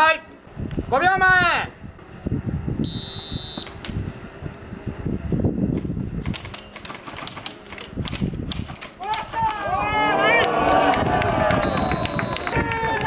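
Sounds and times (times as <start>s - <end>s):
short high beep: 2.8s - 4.7s.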